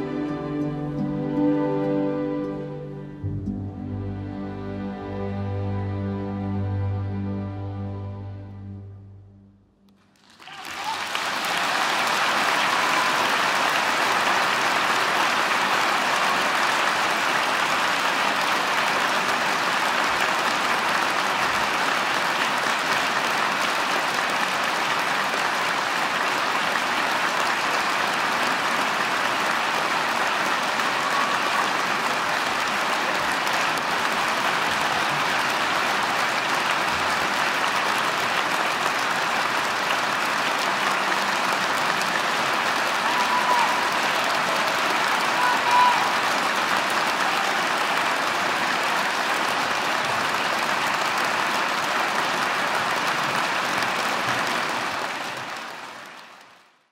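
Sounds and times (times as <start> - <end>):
audience applauding: 10.0 - 56.9.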